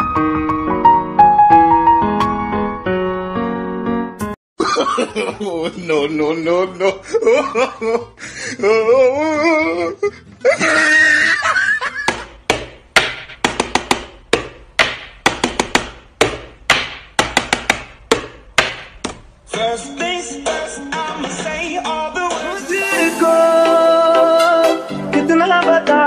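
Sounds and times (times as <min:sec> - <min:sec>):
music: 0:00.0 - 0:04.4, 0:19.5 - 0:26.0
person speaking laughingly: 0:04.8 - 0:11.8.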